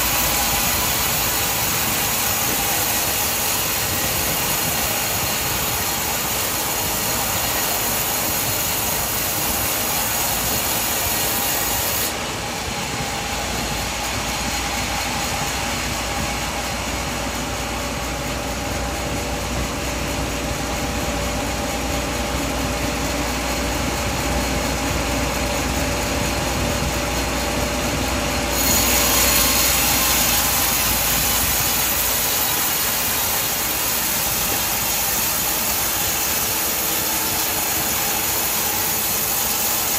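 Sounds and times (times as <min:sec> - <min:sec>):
bandsaw cutting wood: 0:00.0 - 0:12.1, 0:28.5 - 0:39.9.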